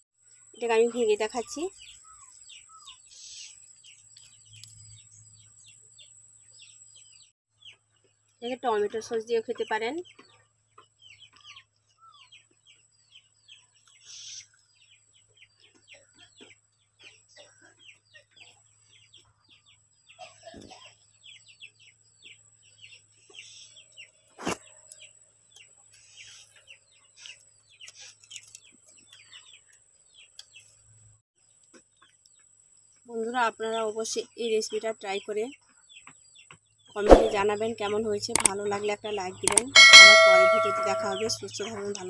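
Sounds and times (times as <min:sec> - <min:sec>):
birds chirping: 0:36.8 - 0:42.0
sharp click: 0:37.1 - 0:37.4, 0:39.5 - 0:41.3.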